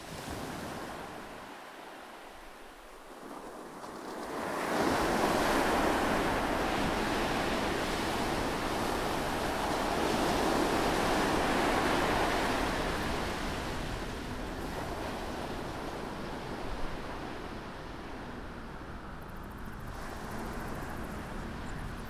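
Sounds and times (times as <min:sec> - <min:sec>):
waves washing on a beach: 0:00.0 - 0:19.2, 0:19.8 - 0:22.0.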